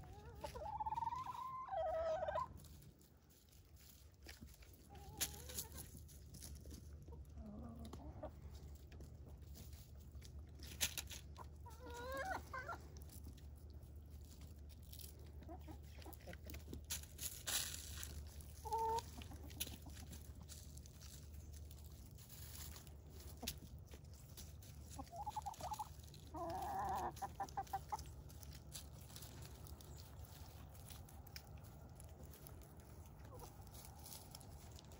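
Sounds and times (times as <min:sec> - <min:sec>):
chicken warbling call: 0:00.0 - 0:02.6, 0:18.6 - 0:19.4
chickens clucking: 0:00.0 - 0:34.9
low steady hum: 0:00.0 - 0:34.9.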